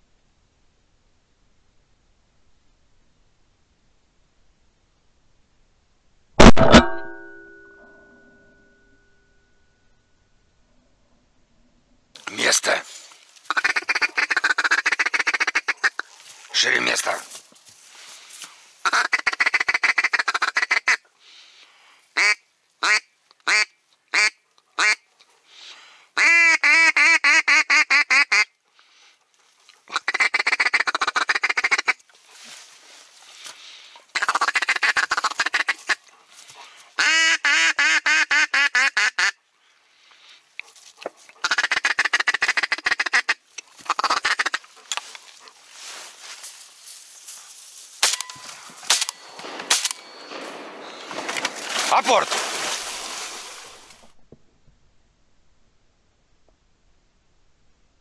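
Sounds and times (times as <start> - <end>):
duck quacking: 13.5 - 16.1, 29.9 - 32.0, 34.2 - 36.1, 37.0 - 39.4, 41.4 - 44.8.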